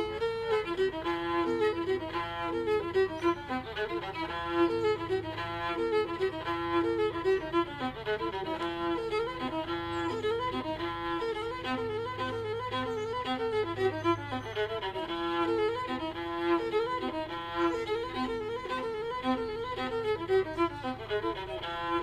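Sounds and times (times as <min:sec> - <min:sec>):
fiddle tune: 0:00.0 - 0:22.0.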